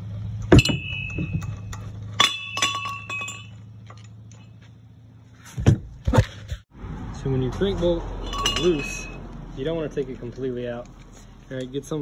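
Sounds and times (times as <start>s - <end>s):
steel tools clanking on metal: 0.4s - 4.6s, 8.2s - 9.2s.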